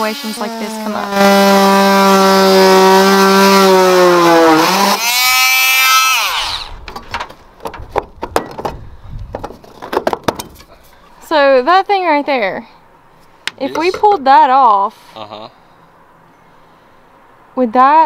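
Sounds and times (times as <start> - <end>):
oscillating multi-tool cutting metal: 0.0 - 6.7.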